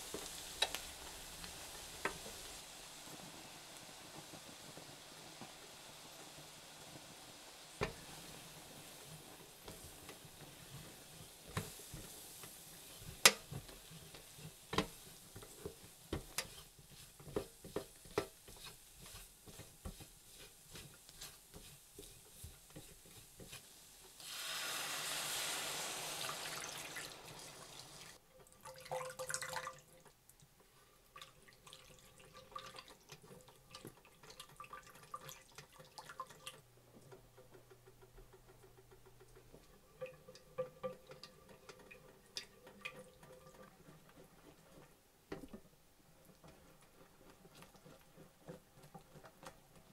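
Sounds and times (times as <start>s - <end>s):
whisk stirring sauce: 9.7s - 23.7s, 39.5s - 49.9s
spatula scraping a steel skillet: 13.9s - 23.7s
liquid pouring into a pan: 24.2s - 30.1s, 31.1s - 36.6s, 39.2s - 44.4s.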